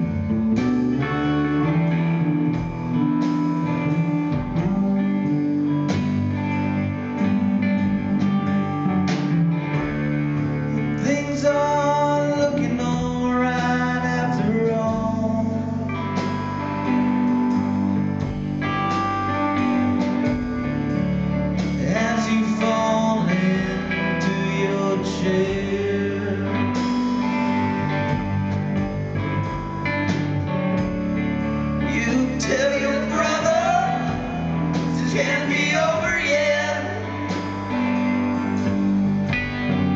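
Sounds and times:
drums: 0.0 - 39.9
electric guitar: 0.0 - 39.9
keyboard: 0.0 - 39.9
man singing: 3.7 - 6.0, 10.6 - 16.6, 21.6 - 27.1, 31.8 - 37.8.

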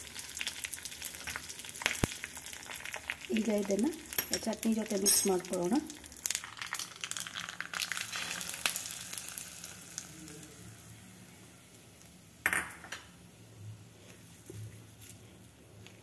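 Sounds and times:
seeds sizzling in hot oil: 0.0 - 12.5.

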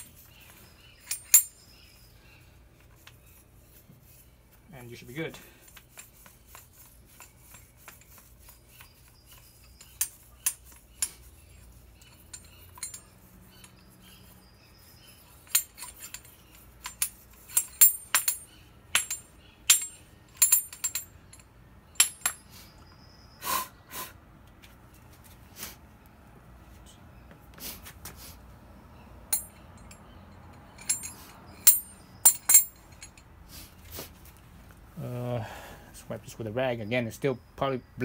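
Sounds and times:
metal hand tools clinking: 0.0 - 1.8, 5.3 - 14.5, 15.1 - 22.5, 29.3 - 33.4
short rasps: 23.4 - 24.2.

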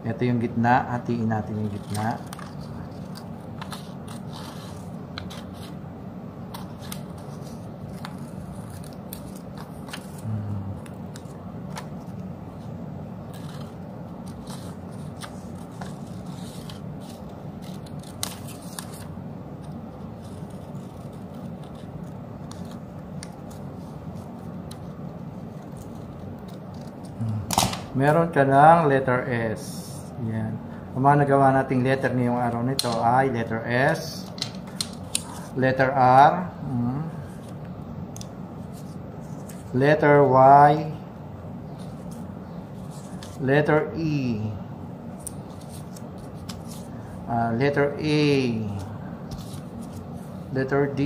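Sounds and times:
scissors snipping paper: 1.6 - 5.8, 6.5 - 10.2, 13.3 - 23.6.

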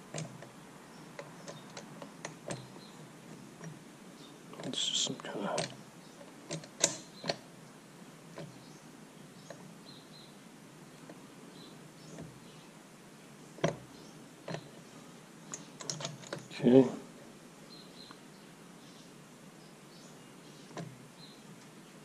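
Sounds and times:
light metal clicks and knocks: 0.0 - 3.8, 4.5 - 7.5, 8.3 - 8.7, 13.6 - 14.8, 15.5 - 16.6, 20.7 - 21.0.

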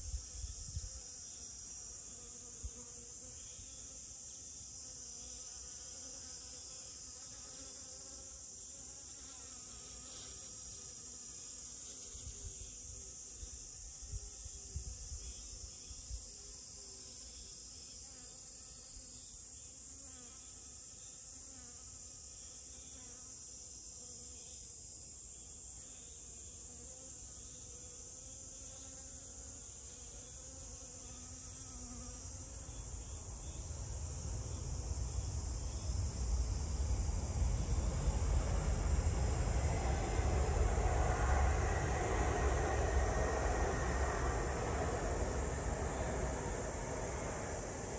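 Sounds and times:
high insect chorus: 0.0 - 47.9
vehicle rumble: 33.6 - 47.9.

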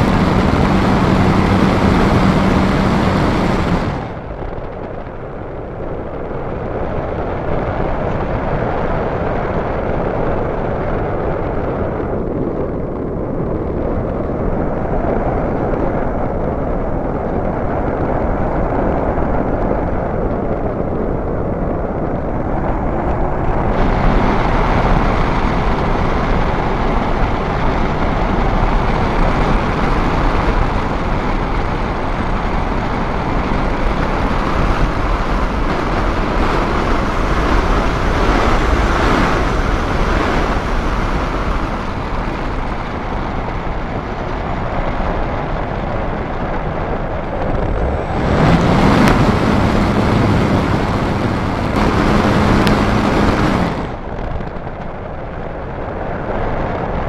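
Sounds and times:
air rushing over glider: 0.0 - 57.0.

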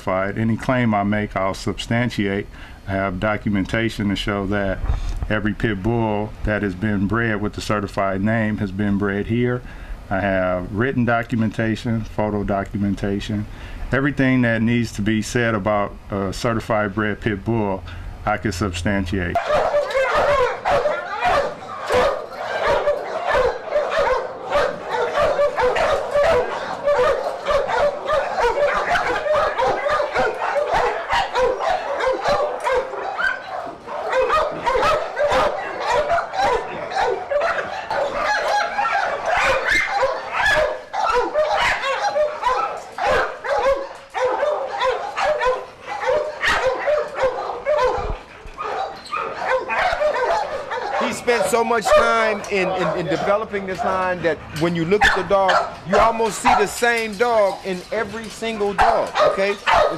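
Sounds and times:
dogs barking and yipping: 19.3 - 59.9.

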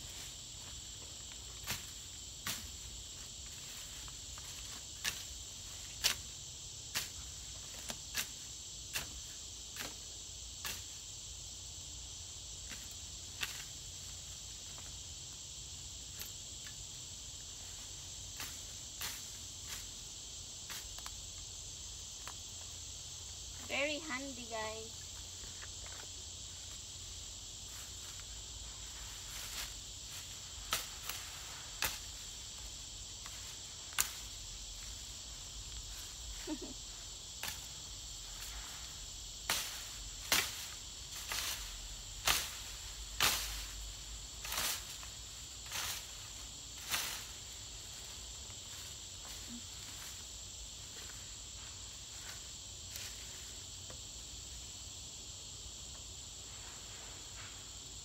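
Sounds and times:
high insect drone: 0.0 - 58.0
cane cutter swishing through grass: 38.3 - 47.5.

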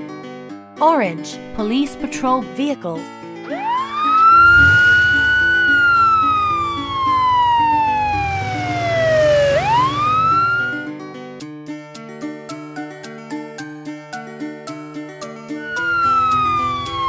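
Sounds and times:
light background music: 0.0 - 17.0
police siren wailing: 3.5 - 10.9, 15.6 - 17.0.

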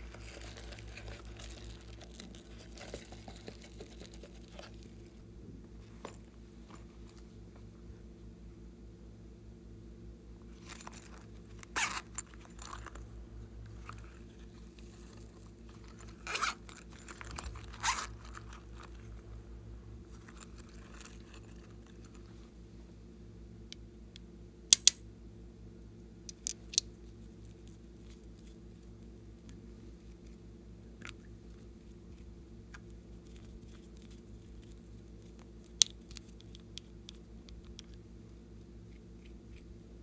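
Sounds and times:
steady low hum: 0.0 - 40.0
zipper rasping open: 10.6 - 13.0, 15.8 - 19.1.

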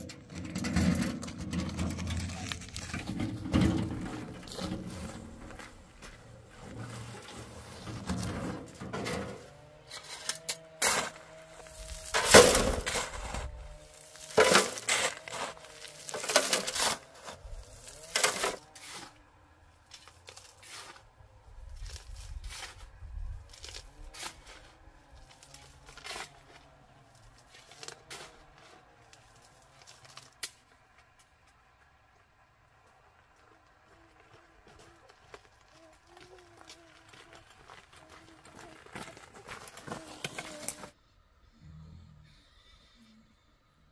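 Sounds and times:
shovel scraping sand and gravel: 0.0 - 19.3, 19.9 - 30.4, 39.0 - 41.0.

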